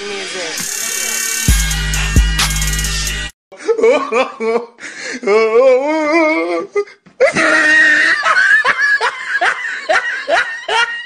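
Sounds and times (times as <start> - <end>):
man laughing loudly: 3.6 - 5.8, 7.2 - 11.0.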